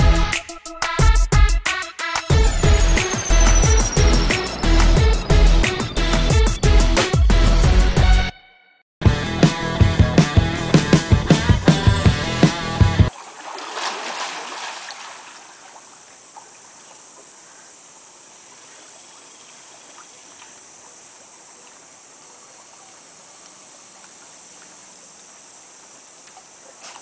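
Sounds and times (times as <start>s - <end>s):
dog paddling in pool water: 13.1s - 17.4s.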